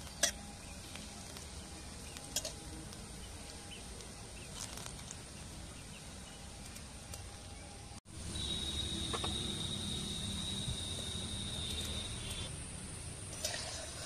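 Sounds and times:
oil sizzling deep-frying: 13.2 - 14.0.

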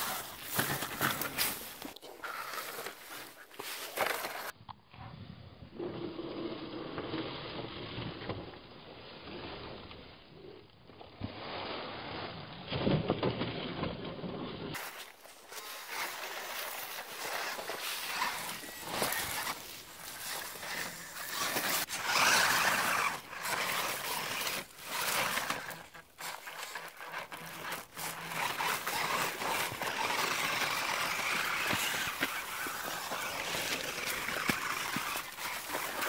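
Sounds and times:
dry leaves and dirt crunching: 0.0 - 4.5, 14.7 - 36.0.

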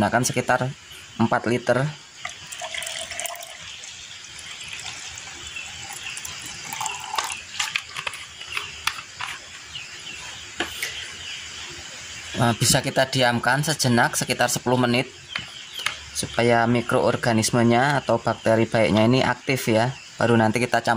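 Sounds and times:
liquid trickling splash: 2.2 - 8.1.

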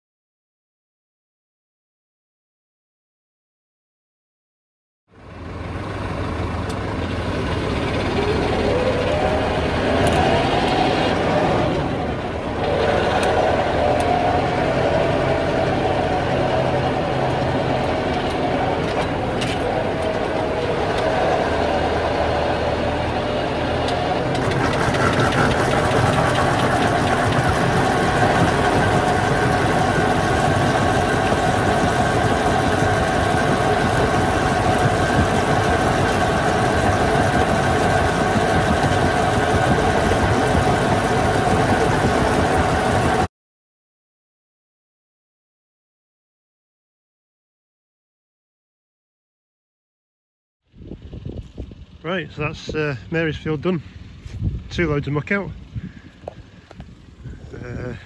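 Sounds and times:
tractor engine running: 5.1 - 43.3, 50.7 - 58.0
muck spreader flinging manure: 6.7 - 43.3.

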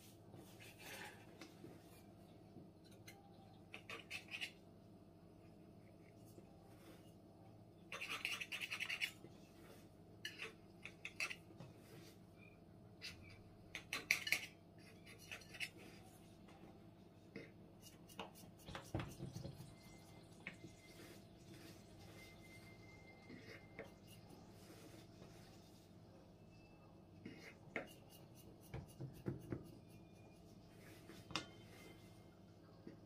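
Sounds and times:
knife scraping a steel tray: 7.9 - 9.2, 10.2 - 11.4, 13.0 - 15.9.

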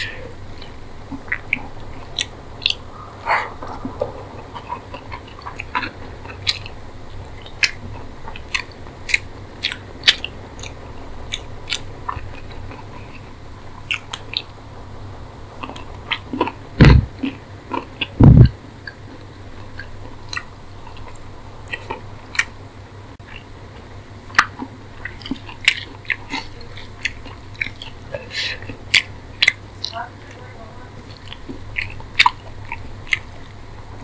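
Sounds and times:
chewing and mouth smacks: 0.0 - 14.6, 15.5 - 22.6, 23.2 - 34.0
loud deep thumps: 16.8 - 17.3, 18.2 - 18.6.

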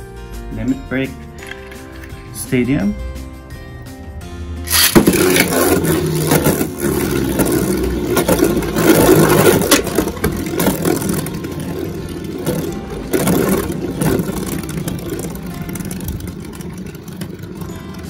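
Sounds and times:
spinning top scraping plastic: 4.7 - 18.0.

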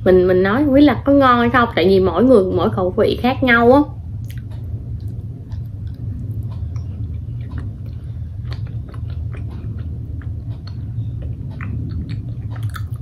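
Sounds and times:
steady low hum: 0.0 - 13.0
person chewing: 4.2 - 13.0.

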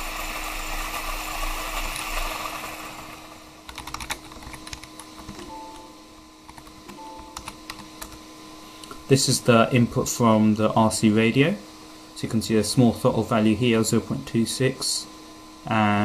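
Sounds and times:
typing on a computer keyboard: 3.7 - 5.5, 6.5 - 8.2.

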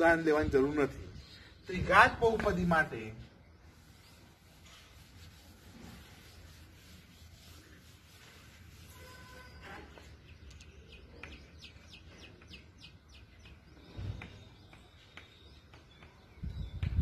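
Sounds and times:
chalk scratching on blackboard: 3.7 - 10.2.

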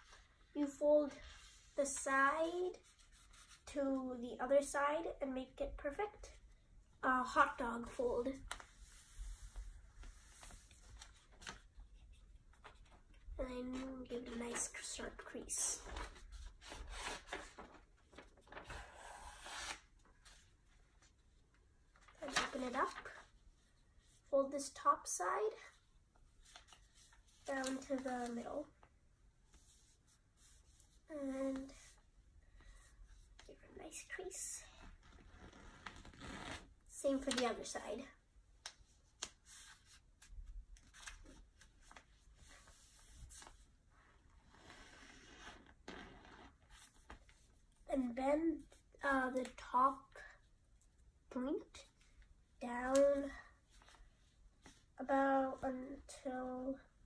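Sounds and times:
paper rustling while creased: 7.6 - 21.2, 21.9 - 24.7, 25.5 - 28.8, 29.5 - 32.1, 34.8 - 37.8, 38.6 - 43.7, 44.3 - 47.8.

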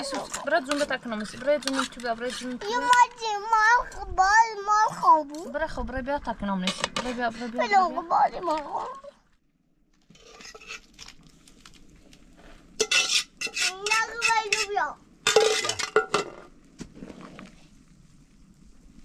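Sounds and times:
child's voice: 2.6 - 5.6, 7.4 - 9.2, 13.6 - 15.0
dishes and cutlery clattering: 12.8 - 14.7, 15.3 - 16.4.

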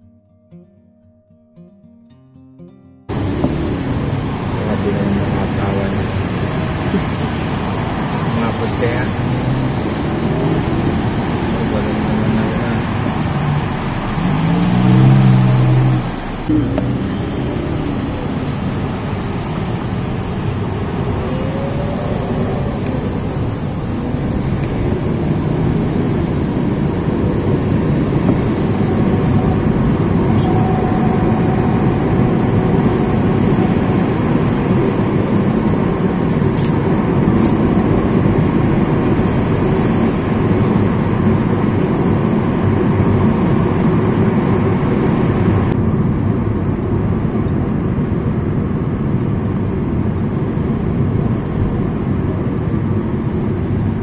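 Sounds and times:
tyres rolling on wet asphalt: 3.1 - 30.3
car engine running: 3.1 - 45.8.

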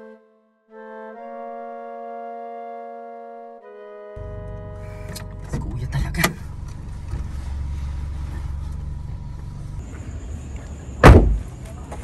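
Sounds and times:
car engine and road rumble: 4.2 - 12.0.

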